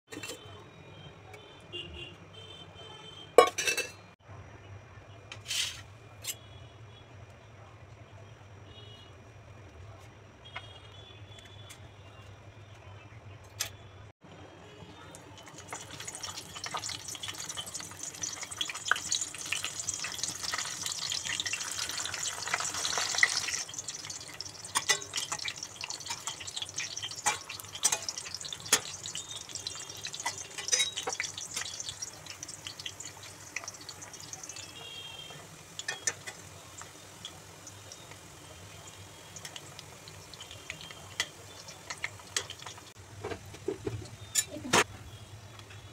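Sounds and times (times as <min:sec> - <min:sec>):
metal spoon clinking on pan: 0:03.4 - 0:04.0, 0:15.7 - 0:34.4, 0:35.8 - 0:36.8, 0:40.4 - 0:42.8, 0:44.2 - 0:44.6
meat sizzling in hot oil: 0:15.4 - 0:43.0.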